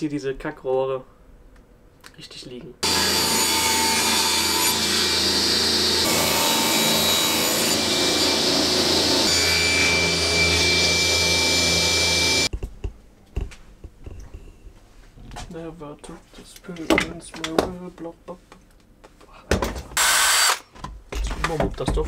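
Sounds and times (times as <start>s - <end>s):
table saw cutting wood: 2.8s - 12.5s, 20.0s - 20.6s.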